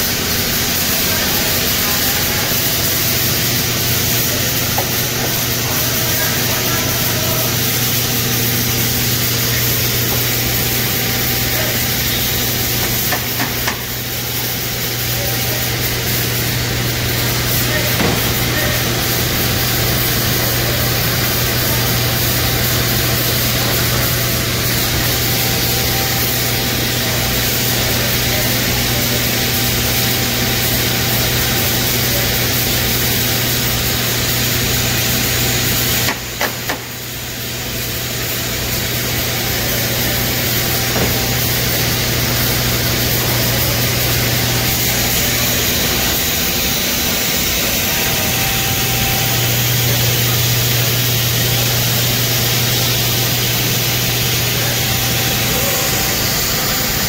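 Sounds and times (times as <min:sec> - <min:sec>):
machine running with hiss: 0:00.0 - 0:57.0.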